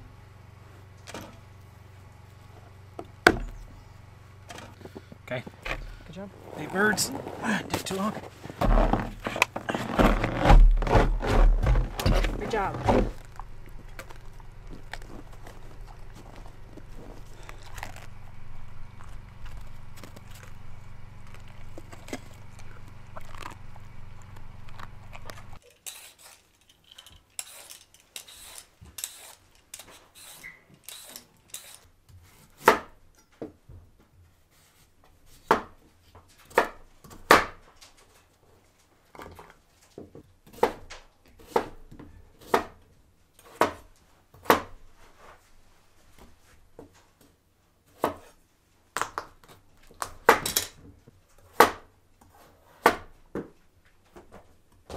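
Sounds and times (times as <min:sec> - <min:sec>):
steady low hum: 0:00.0 - 0:25.6
knife peeling vegetables: 0:18.9 - 0:26.7, 0:27.3 - 0:32.9
knife chopping on wooden board: 0:40.5 - 0:40.8, 0:42.4 - 0:42.8.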